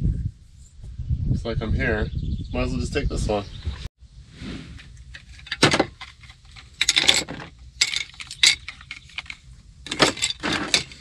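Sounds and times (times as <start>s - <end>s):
small tools clattering: 4.9s - 11.0s.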